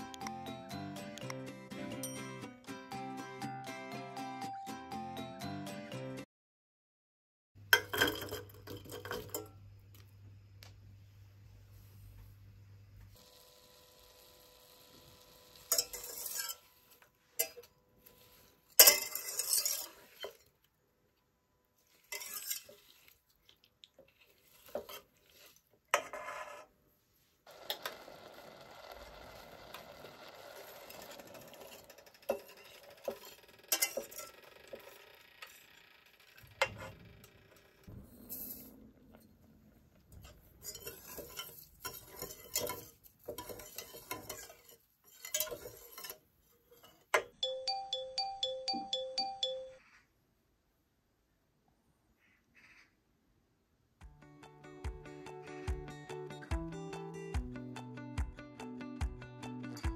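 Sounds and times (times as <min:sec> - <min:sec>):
wire whisk scraping metal pot: 0:15.7 - 0:17.6, 0:18.2 - 0:20.5, 0:21.9 - 0:23.2, 0:24.1 - 0:26.7, 0:30.4 - 0:35.6, 0:40.2 - 0:47.1.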